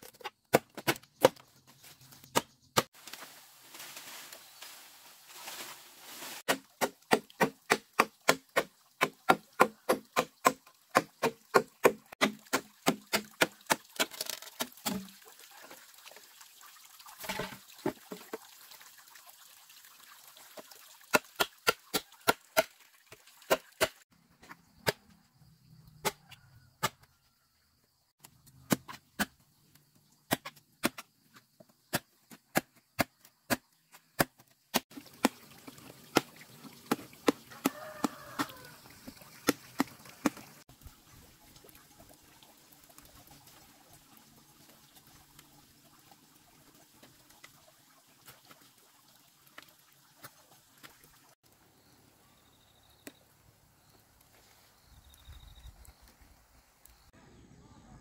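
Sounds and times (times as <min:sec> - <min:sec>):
machete chopping bamboo: 0:00.1 - 0:01.4, 0:02.3 - 0:02.9, 0:06.5 - 0:15.1, 0:26.8 - 0:27.0, 0:30.3 - 0:31.1, 0:31.9 - 0:35.4.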